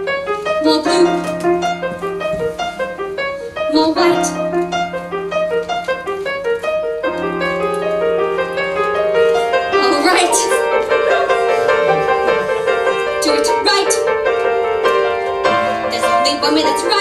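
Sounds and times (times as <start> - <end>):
piano playing: 0.0 - 17.0.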